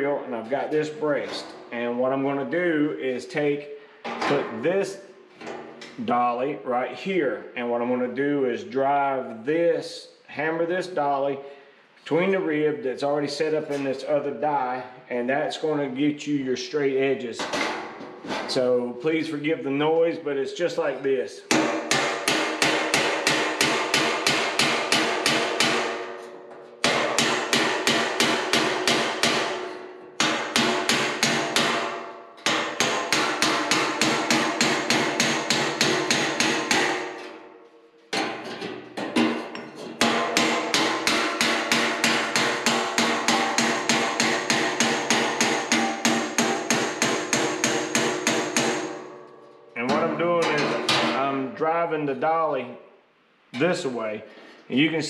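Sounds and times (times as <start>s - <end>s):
hammer striking steel: 21.5s - 37.5s, 39.0s - 51.3s.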